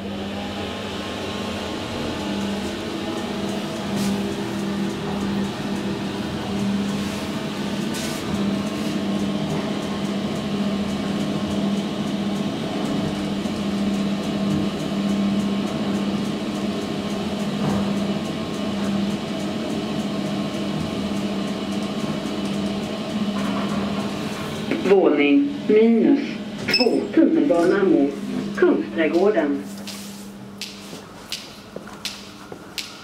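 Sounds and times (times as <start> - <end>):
elevator car humming: 0.0 - 33.0.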